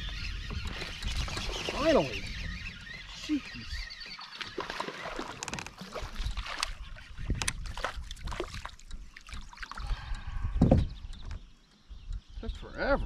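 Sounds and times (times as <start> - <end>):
water splashing: 3.2 - 9.9.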